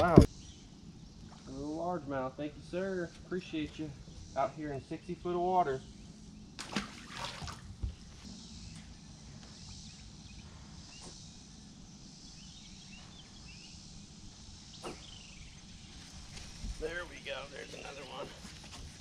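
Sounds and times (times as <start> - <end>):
open water ambience: 0.0 - 19.0
fish splashing into water: 6.6 - 7.7.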